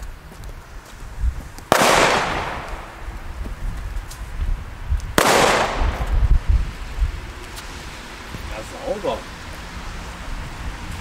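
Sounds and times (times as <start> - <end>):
firecracker bangs with echo: 1.7 - 3.1, 5.2 - 6.1.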